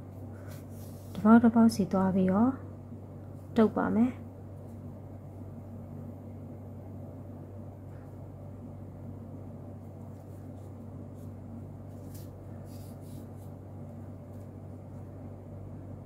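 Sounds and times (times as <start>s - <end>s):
yarn rustling through fabric: 0.0s - 1.5s, 9.7s - 15.1s
steady low hum: 0.0s - 16.0s.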